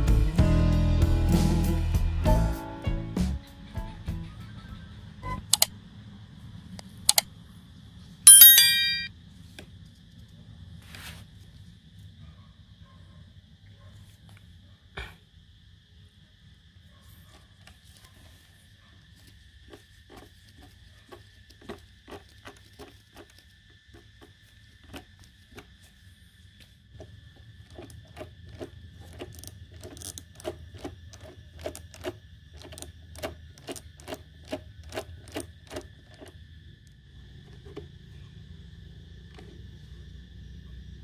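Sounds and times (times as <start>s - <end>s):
sharp metallic clicks: 5.4s - 5.7s, 7.1s - 7.3s, 8.3s - 9.1s.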